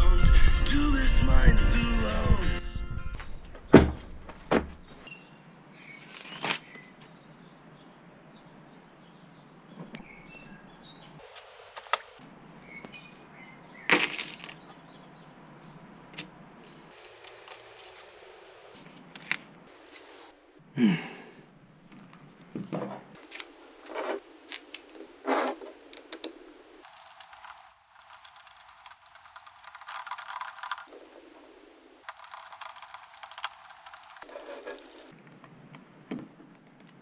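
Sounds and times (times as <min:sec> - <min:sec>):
screwdriver clicking and scraping plastic: 0:26.9 - 0:30.9, 0:32.1 - 0:35.1.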